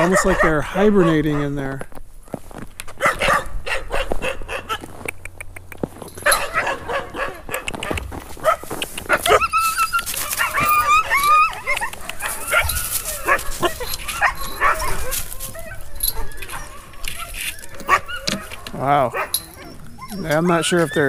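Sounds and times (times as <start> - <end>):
dogs barking: 0.0 - 1.7, 3.0 - 5.1, 6.2 - 21.0
footsteps crunching in snow: 1.3 - 5.1, 5.8 - 18.8
dogs whining and yipping: 6.1 - 21.0.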